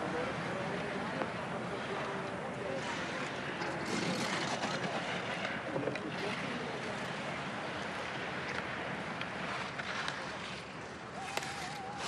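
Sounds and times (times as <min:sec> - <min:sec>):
skis scraping on hard snow: 0:03.0 - 0:05.6, 0:09.3 - 0:12.0.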